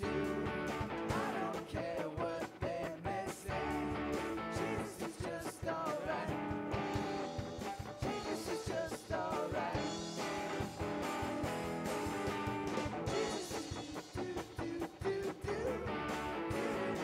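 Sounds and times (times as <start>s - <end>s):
electric bass: 0.0s - 1.8s, 2.9s - 5.2s, 6.0s - 17.0s
person singing: 0.0s - 7.2s, 8.0s - 10.6s, 13.1s - 17.0s
electric guitar: 0.0s - 17.0s
steady drum beat: 0.0s - 17.0s.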